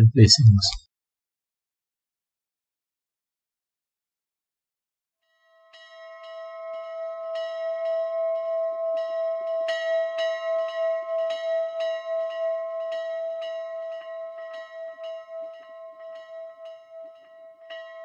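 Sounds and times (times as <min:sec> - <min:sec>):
small church bell ringing: 0:05.5 - 0:18.0.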